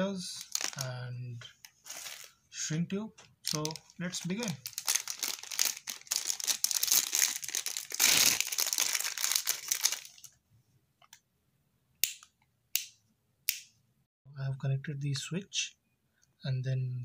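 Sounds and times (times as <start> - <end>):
plastic bag crinkling: 0.4 - 0.9, 1.6 - 2.4, 3.4 - 10.3.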